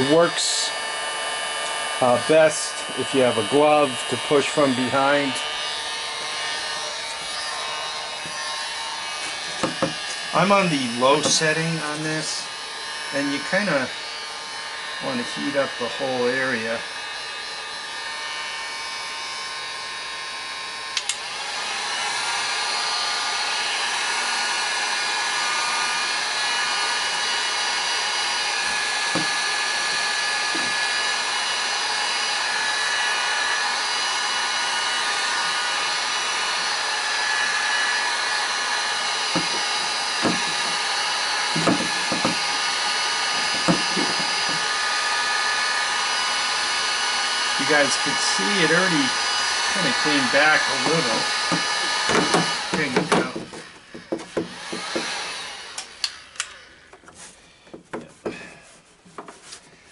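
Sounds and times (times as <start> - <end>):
heat gun whirring: 0.0 - 59.9
heat gun switch click: 21.0 - 21.2, 55.7 - 56.6
short knocks: 39.4 - 40.8, 41.6 - 42.5.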